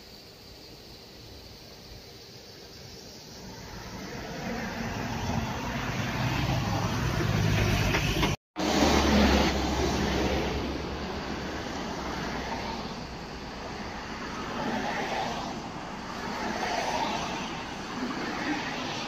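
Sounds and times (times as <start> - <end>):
vehicle passing on road: 3.3 - 19.0.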